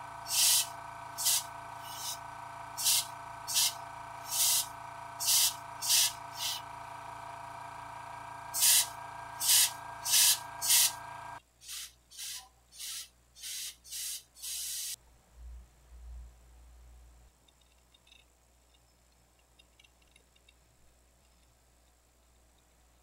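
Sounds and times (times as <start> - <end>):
steady motor hum: 0.0 - 11.4
airbrush spraying hiss: 0.2 - 2.2, 2.8 - 6.6, 8.5 - 11.0, 11.6 - 15.0.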